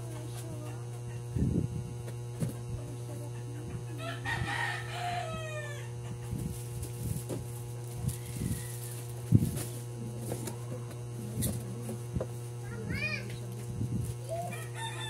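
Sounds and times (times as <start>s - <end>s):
steady low hum: 0.0s - 15.0s
rooster crowing: 4.0s - 6.1s, 8.1s - 9.1s, 14.3s - 15.0s.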